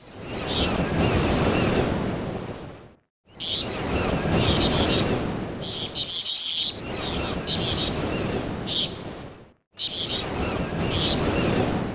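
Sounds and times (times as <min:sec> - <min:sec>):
small birds chirping: 0:03.3 - 0:09.1, 0:09.8 - 0:11.4
ocean surf washing in: 0:03.4 - 0:11.9.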